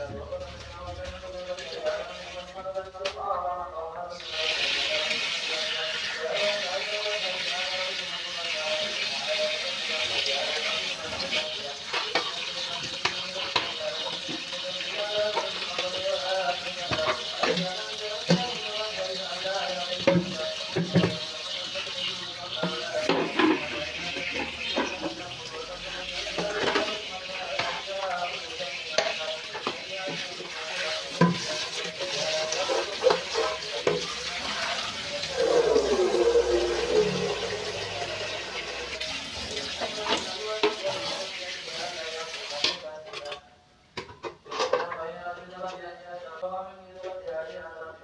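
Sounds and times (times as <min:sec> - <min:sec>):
water running from a tap: 0:04.2 - 0:42.7
tap water splashing into pot: 0:28.9 - 0:34.0.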